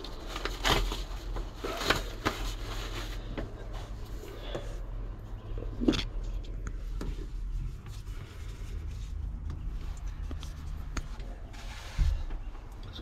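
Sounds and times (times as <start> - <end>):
steady low rumble: 2.6 - 13.0.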